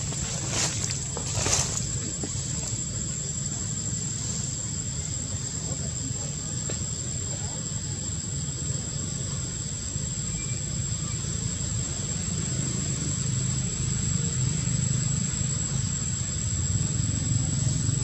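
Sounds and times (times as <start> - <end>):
low outdoor rumble: 0.0 - 18.0.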